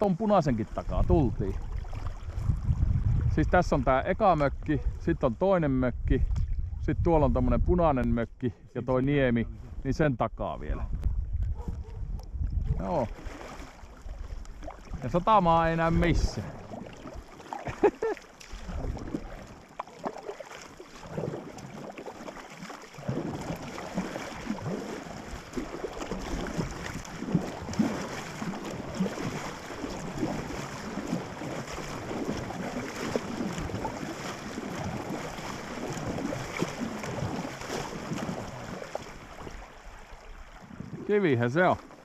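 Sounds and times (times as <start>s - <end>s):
paddle strokes splashing water: 0.0s - 5.0s, 11.0s - 42.0s
water lapping against raft: 0.0s - 42.0s.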